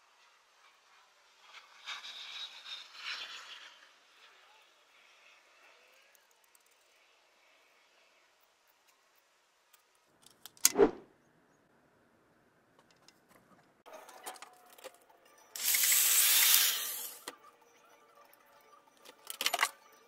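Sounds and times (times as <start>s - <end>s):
small metallic clicks: 19.0s - 19.9s.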